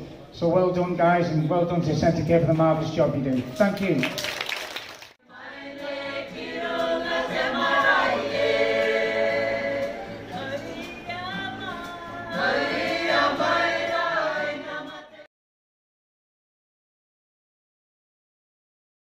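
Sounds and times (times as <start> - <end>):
group singing in chorus: 5.2 - 15.3.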